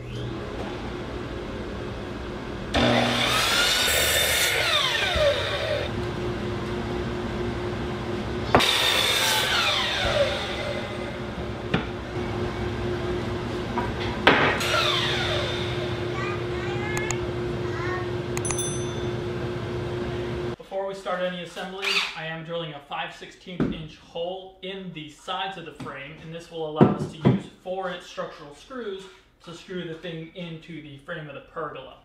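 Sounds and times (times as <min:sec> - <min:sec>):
steady motor hum: 0:00.1 - 0:20.6
miter saw cutting wood: 0:02.7 - 0:05.9, 0:08.5 - 0:11.4, 0:14.5 - 0:16.1.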